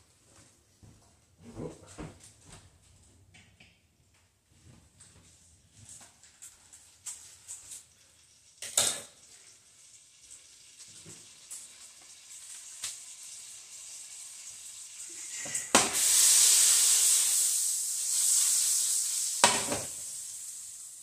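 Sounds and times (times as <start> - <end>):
butter sizzling in a frying pan: 6.5 - 21.0
frying pan knock: 15.8 - 16.0, 19.4 - 20.0.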